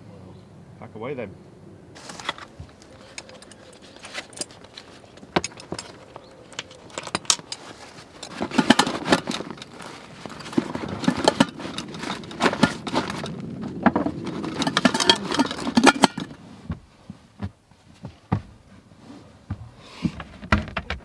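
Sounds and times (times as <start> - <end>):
fabric rustling: 2.0 - 6.2, 6.8 - 19.5
pots and utensils clinking: 3.0 - 13.4, 14.1 - 16.4.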